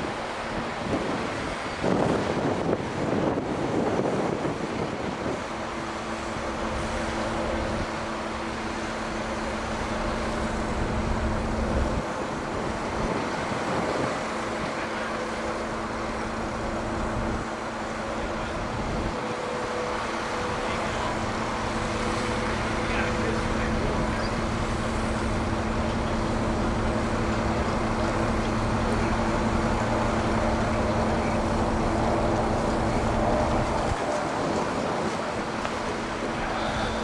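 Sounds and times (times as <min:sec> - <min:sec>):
diesel engine rumbling: 0:00.0 - 0:37.0
steady hum: 0:00.0 - 0:37.0.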